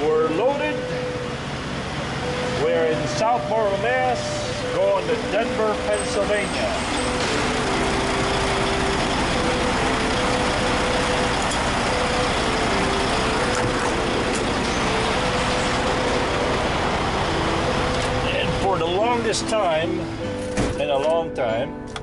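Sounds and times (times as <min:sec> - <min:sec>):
diesel truck engines rumbling: 0:00.0 - 0:22.0.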